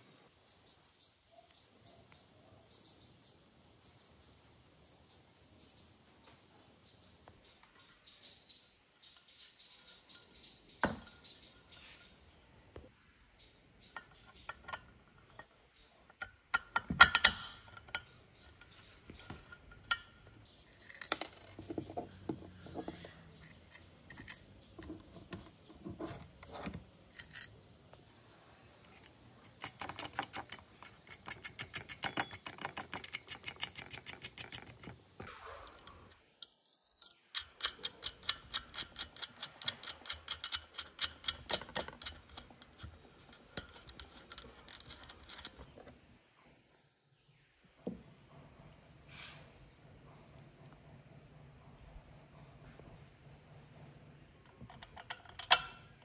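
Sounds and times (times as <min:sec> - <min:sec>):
screws and nuts clattering on metal: 0:13.8 - 0:22.8, 0:28.8 - 0:46.0, 0:54.5 - 0:56.0
rapid ticking of threading nuts: 0:28.0 - 0:35.3, 0:35.9 - 0:46.0.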